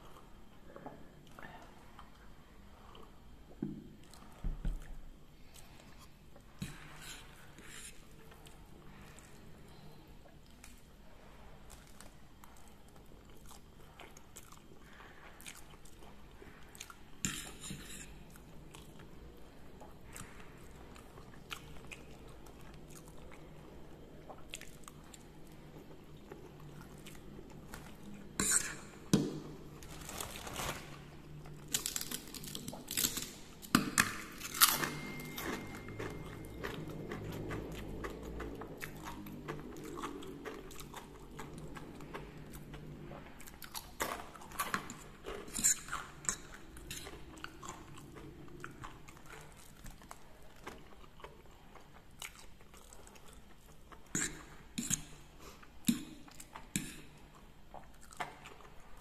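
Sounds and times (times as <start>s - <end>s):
chewing noodles: 6.7s - 59.0s
crackers crunching: 29.7s - 38.4s.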